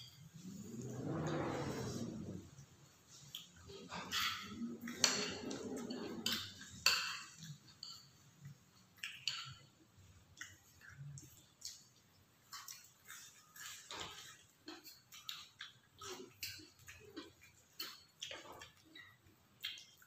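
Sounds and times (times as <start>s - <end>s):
chewing: 3.1s - 20.0s
cutlery clinking on ceramic plates: 3.7s - 8.4s, 12.6s - 18.8s.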